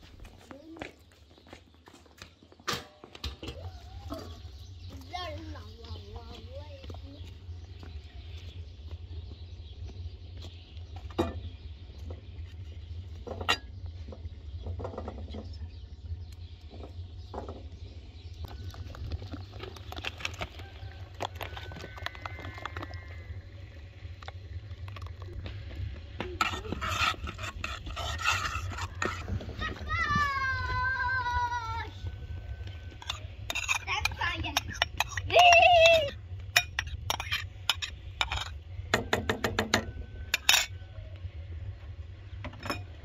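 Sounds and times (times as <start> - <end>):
steady low rumble: 4.3 - 39.0, 39.9 - 43.0
metal spoon scraping pots: 26.4 - 29.8, 32.6 - 40.8.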